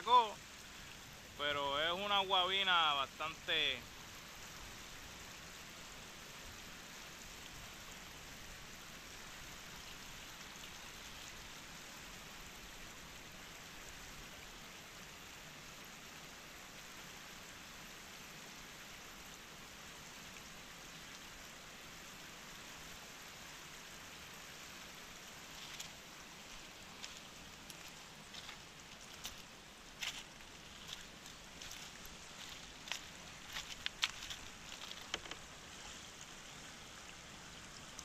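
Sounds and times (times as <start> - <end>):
river flowing over stones: 0.0 - 38.0.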